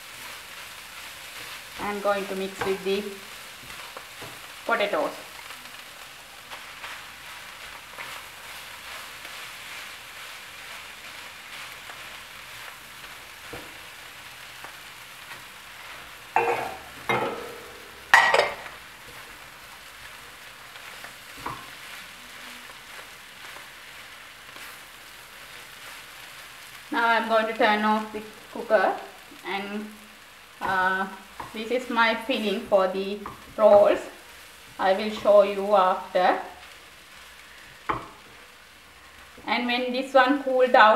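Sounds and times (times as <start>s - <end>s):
fish filling sizzling in a frying pan: 0.0s - 40.9s
spatula scraping and knocking pan: 1.4s - 4.5s, 16.4s - 19.3s.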